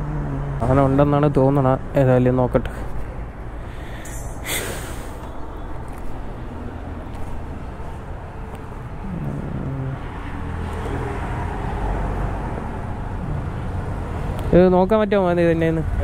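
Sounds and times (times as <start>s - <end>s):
engine note climbing: 0.0s - 2.0s, 4.1s - 14.6s
road traffic: 0.0s - 16.0s.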